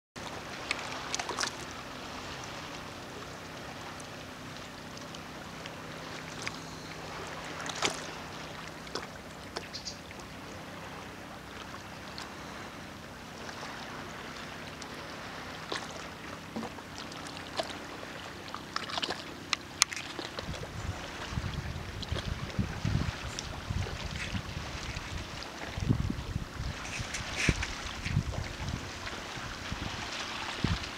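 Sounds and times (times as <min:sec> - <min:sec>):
steady low hum: 0:00.2 - 0:30.9
water lapping at shore: 0:00.2 - 0:30.9
small splashes and clicks: 0:00.6 - 0:01.8, 0:05.0 - 0:06.6, 0:07.6 - 0:10.3, 0:18.5 - 0:20.6.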